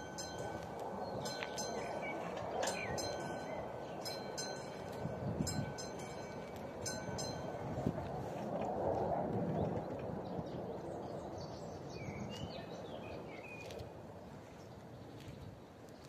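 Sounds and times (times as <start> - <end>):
level crossing bell ringing: 0.0 - 7.8.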